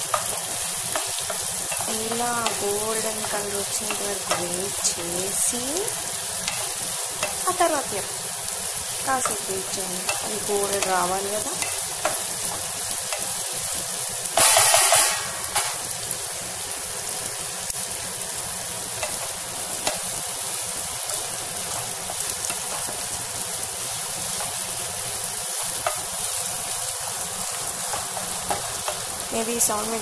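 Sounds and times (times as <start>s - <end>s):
spatula tapping pan: 0.0s - 8.1s, 8.9s - 13.6s, 18.8s - 20.3s, 20.9s - 29.3s
kitchen chimney fan running: 0.0s - 30.0s
onions sizzling in hot oil: 0.0s - 30.0s.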